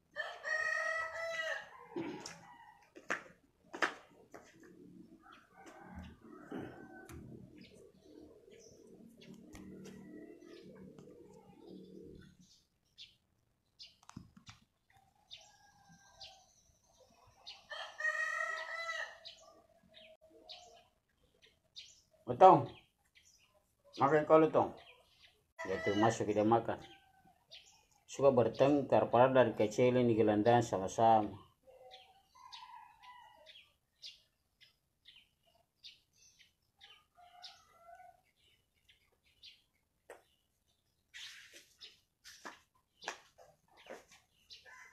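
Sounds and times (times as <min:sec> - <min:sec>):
rooster crowing: 0:00.1 - 0:02.9, 0:17.7 - 0:19.4, 0:25.6 - 0:26.2
small birds chirping: 0:04.0 - 0:44.9.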